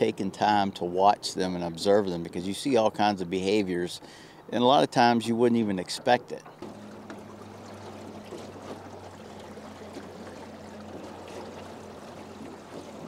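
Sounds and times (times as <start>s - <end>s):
waves lapping against boat hull: 5.0s - 13.0s
steady low hum: 6.4s - 13.0s.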